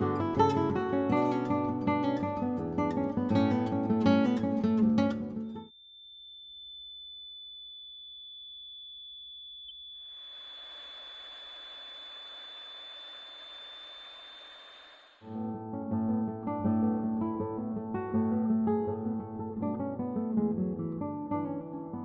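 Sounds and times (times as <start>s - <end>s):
music: 0.0s - 5.7s, 15.2s - 22.0s
high-pitched electronic tone: 5.7s - 15.3s.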